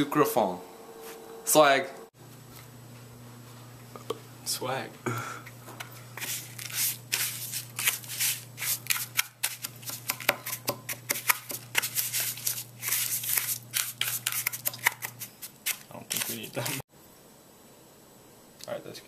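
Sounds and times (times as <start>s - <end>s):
steady low hum: 0.0s - 14.4s.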